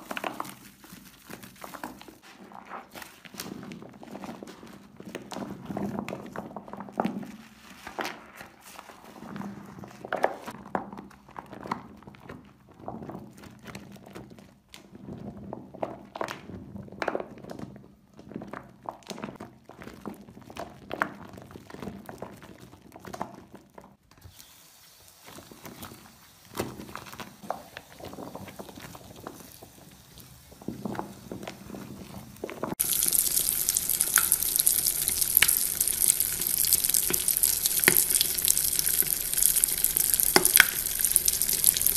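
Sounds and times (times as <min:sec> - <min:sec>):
wet soap squishing: 0:00.0 - 0:10.5, 0:31.0 - 0:41.9.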